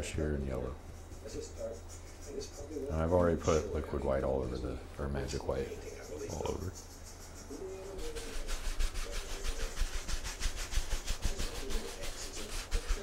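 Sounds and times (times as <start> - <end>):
paint brush scrubbing canvas: 5.3 - 13.0.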